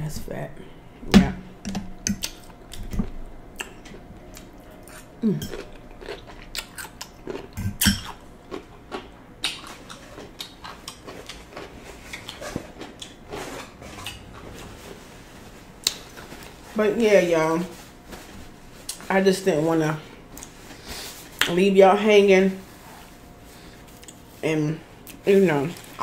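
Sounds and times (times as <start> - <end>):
chewing and crunching: 2.2 - 15.0.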